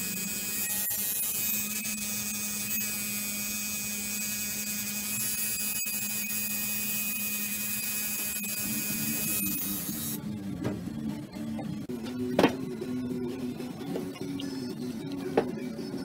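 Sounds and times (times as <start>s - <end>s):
tattoo machine buzzing: 0.0s - 10.2s.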